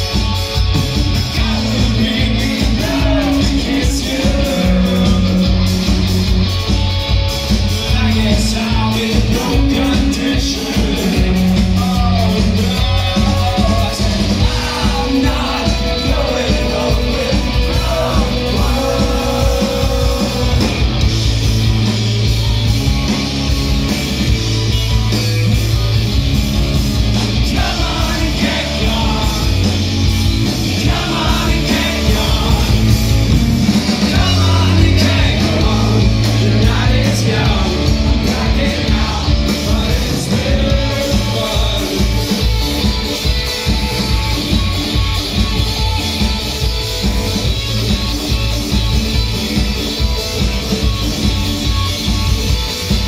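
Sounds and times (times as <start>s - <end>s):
drum kit: 0.0s - 53.0s
electric bass: 0.0s - 53.0s
electric guitar: 0.0s - 53.0s
man singing: 1.3s - 5.7s, 7.8s - 20.8s, 27.4s - 29.8s, 30.8s - 33.1s, 34.0s - 42.3s.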